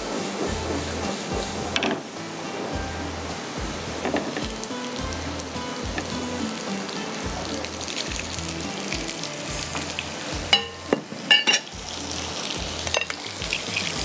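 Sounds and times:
oil sizzling in frying pan: 0:00.0 - 0:14.0.

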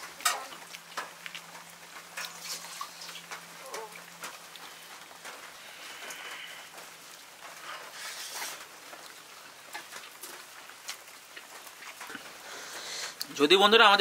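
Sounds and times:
drips and clicks: 0:00.0 - 0:13.4
steady rain hiss: 0:00.0 - 0:14.0.

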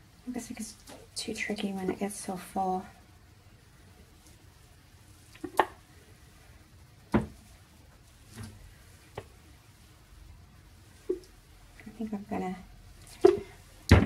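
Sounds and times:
tools knocking on table: 0:07.1 - 0:07.4.

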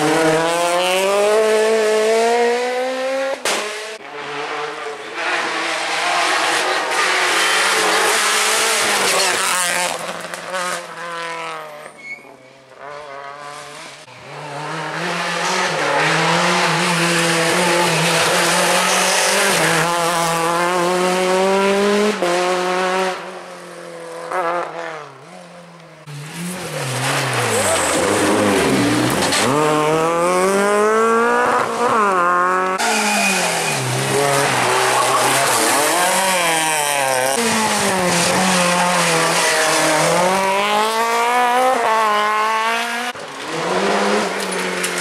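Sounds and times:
rally car engines revving: 0:00.0 - 0:45.0.

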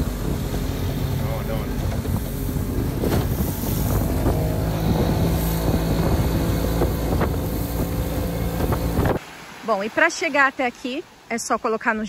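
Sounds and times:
boat engine running: 0:00.0 - 0:09.2
wind buffeting microphone: 0:00.0 - 0:09.2.

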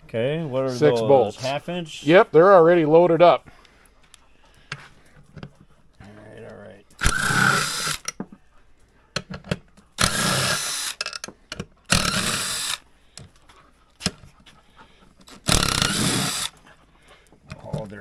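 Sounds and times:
cordless drill spinning: 0:07.0 - 0:08.2, 0:10.0 - 0:13.3, 0:15.2 - 0:16.6.

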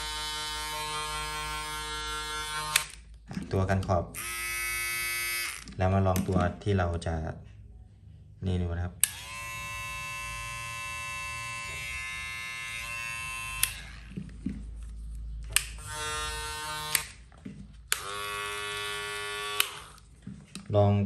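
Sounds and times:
hair clippers buzzing: 0:00.0 - 0:02.9, 0:04.2 - 0:05.7, 0:09.0 - 0:14.2, 0:15.8 - 0:17.2, 0:17.9 - 0:20.0.

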